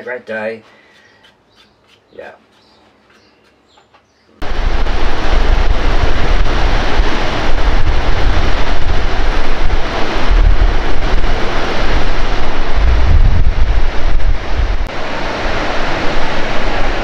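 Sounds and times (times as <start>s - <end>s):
water rushing over spillway: 4.4s - 17.0s
wind buffeting microphone: 4.4s - 17.0s.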